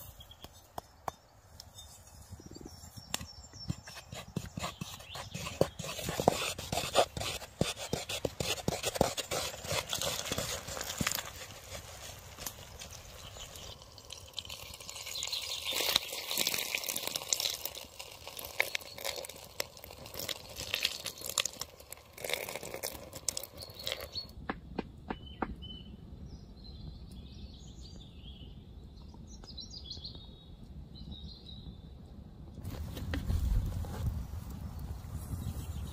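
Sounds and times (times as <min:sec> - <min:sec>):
birds chirping: 0:00.0 - 0:06.7, 0:12.5 - 0:16.3, 0:23.3 - 0:24.4
stick stirring batter in bowl: 0:03.1 - 0:12.9, 0:15.6 - 0:24.2.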